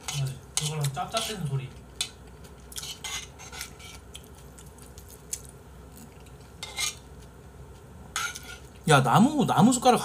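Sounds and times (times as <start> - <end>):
metal spoon scraping a bowl: 0.0 - 2.2, 2.8 - 4.0, 6.6 - 7.0, 8.2 - 8.7.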